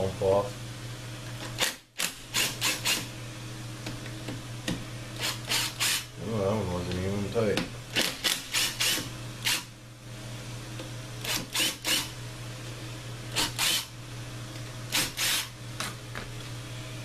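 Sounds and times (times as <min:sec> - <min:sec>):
cordless drill whirring: 0:05.2 - 0:06.1, 0:08.0 - 0:09.7, 0:11.2 - 0:12.1, 0:13.4 - 0:13.9, 0:14.9 - 0:15.5.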